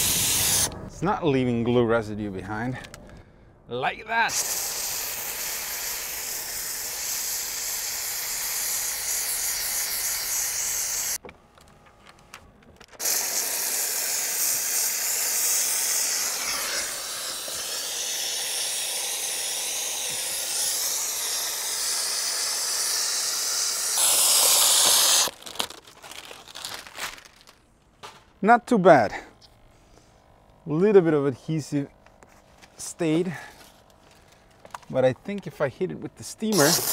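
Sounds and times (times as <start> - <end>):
steam cleaner hissing: 0.0 - 0.8, 4.2 - 11.2, 13.0 - 25.4, 36.4 - 36.9.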